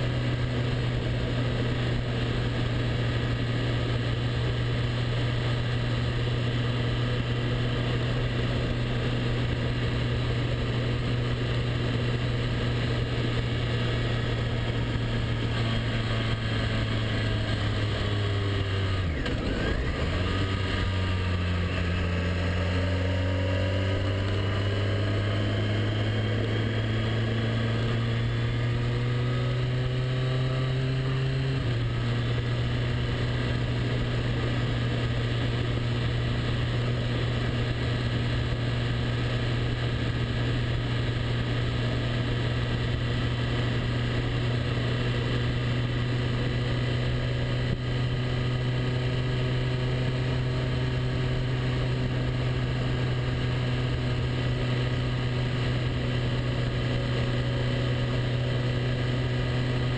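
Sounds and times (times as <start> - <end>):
motorcycle engine under throttle: 0.0 - 59.9.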